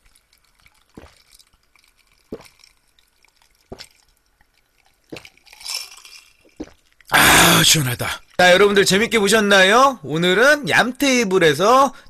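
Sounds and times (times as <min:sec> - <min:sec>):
person gulping a drink: 0:00.0 - 0:08.3.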